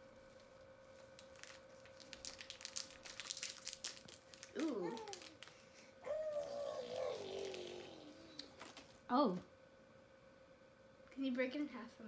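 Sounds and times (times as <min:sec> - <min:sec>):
plastic wrapper crinkling and tearing: 0:01.0 - 0:08.9
short vocal sound: 0:06.0 - 0:08.6.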